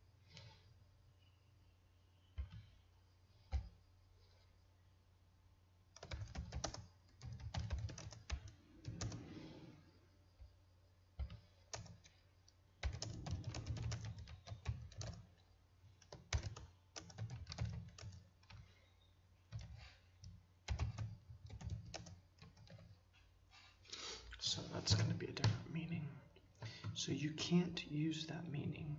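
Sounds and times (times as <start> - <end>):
computer keyboard typing: 2.4 - 2.8, 3.4 - 3.8, 5.9 - 9.5, 11.2 - 12.2, 12.8 - 15.4, 16.0 - 18.8, 19.5 - 23.0.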